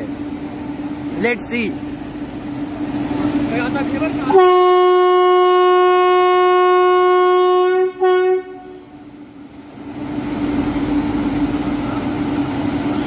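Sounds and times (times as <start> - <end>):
locomotive air horn blast: 4.3 - 9.0.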